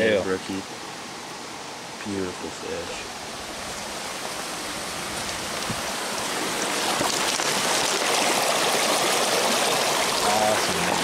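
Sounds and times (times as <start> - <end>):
brook splashing over stones: 3.2 - 11.0.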